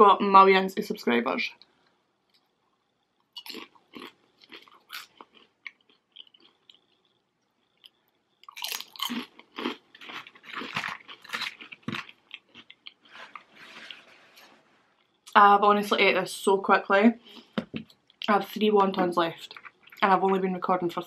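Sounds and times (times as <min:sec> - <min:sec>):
crunchy chewing of fried food: 0:02.3 - 0:15.2, 0:19.4 - 0:20.0.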